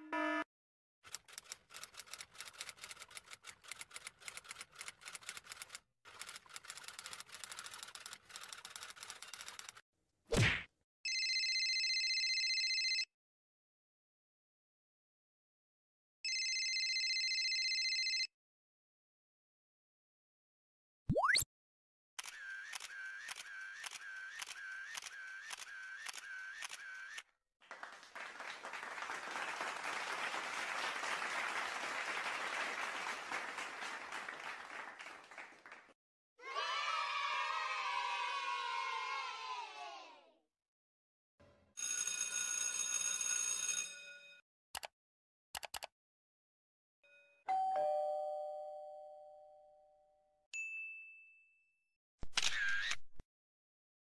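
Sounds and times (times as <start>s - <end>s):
applause: 27.6s - 36.0s
high ding: 47.1s - 50.0s, 50.6s - 51.7s
ding-dong doorbell chime: 47.1s - 51.8s.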